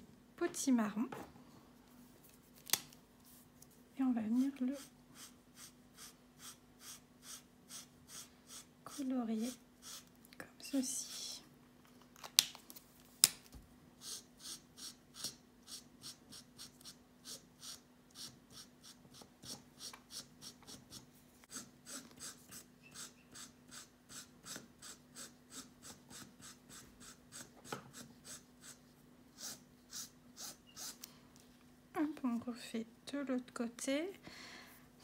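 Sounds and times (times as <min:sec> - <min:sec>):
marker scratching over ribbon: 0:04.4 - 0:10.1, 0:14.0 - 0:31.1.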